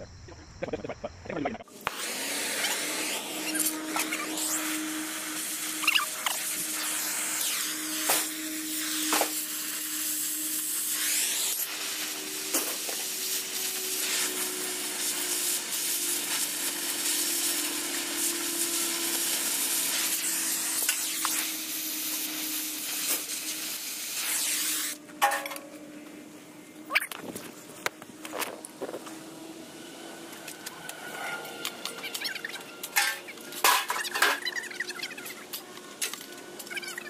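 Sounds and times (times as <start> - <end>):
loud hiss: 1.7 - 25.0
machine humming: 24.9 - 34.8.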